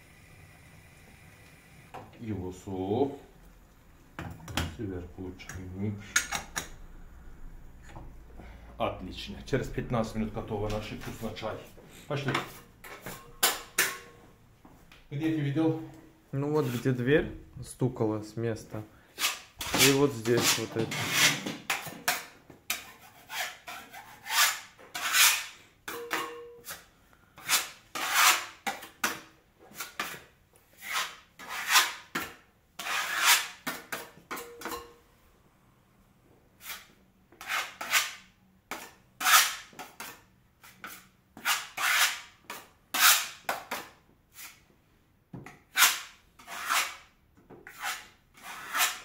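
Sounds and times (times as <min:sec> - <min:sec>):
putty knife scraping a wall: 0:19.2 - 0:25.6, 0:26.6 - 0:34.2, 0:36.6 - 0:44.6, 0:45.5 - 0:49.0.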